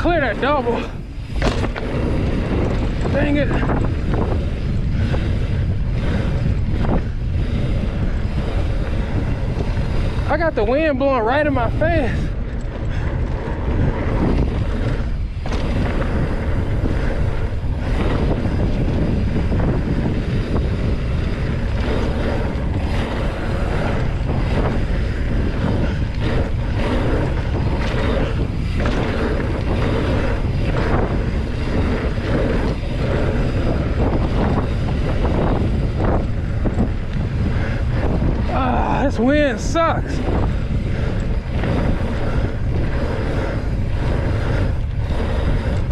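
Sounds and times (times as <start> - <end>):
bike knocks and rattles: 0.0 - 45.9
wind buffeting microphone: 0.0 - 45.9.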